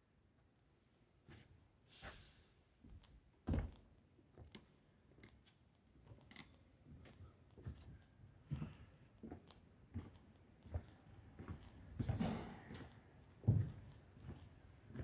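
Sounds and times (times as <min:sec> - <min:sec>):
footsteps on wooden floor: 0:02.8 - 0:04.5, 0:07.0 - 0:15.0.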